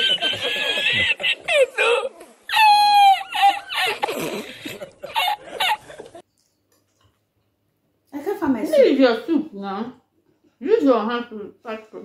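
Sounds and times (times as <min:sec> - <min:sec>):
man laughing high-pitched: 0:00.0 - 0:06.2.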